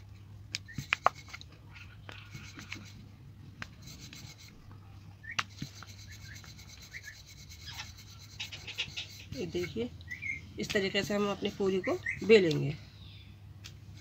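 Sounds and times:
rolling pin rolling dough: 0:05.5 - 0:09.7.

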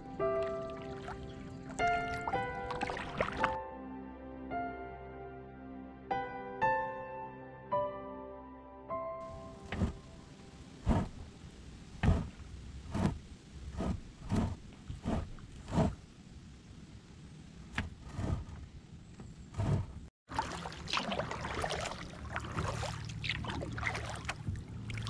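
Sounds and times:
kayak paddle splashing: 0:00.0 - 0:03.6, 0:20.3 - 0:25.0
small splashes and trickling water: 0:00.0 - 0:03.6, 0:20.3 - 0:25.0.

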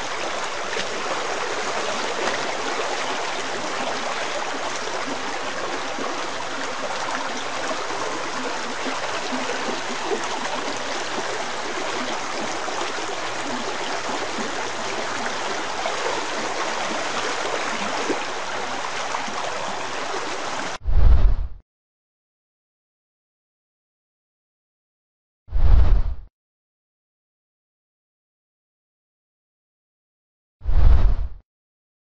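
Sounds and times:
water rushing in a ravine: 0:00.0 - 0:20.8.

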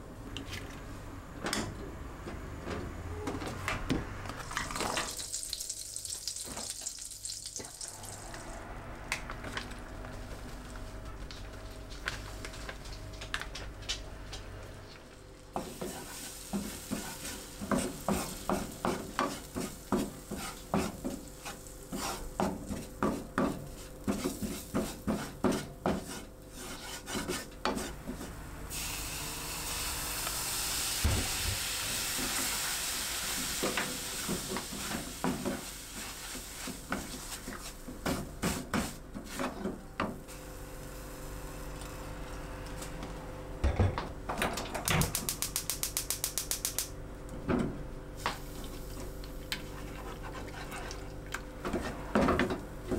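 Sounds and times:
pan sizzling: 0:04.5 - 0:08.4, 0:15.5 - 0:26.2, 0:29.7 - 0:39.0
wooden spatula scraping pan: 0:15.7 - 0:28.3.

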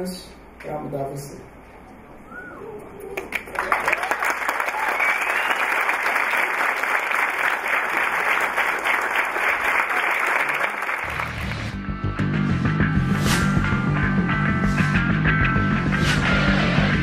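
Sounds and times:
audience applause: 0:03.1 - 0:11.8.

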